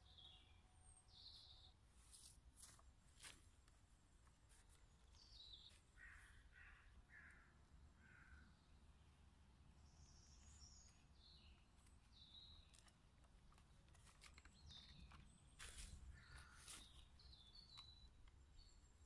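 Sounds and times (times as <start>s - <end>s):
birds chirping: 0.0s - 1.8s, 4.3s - 19.0s.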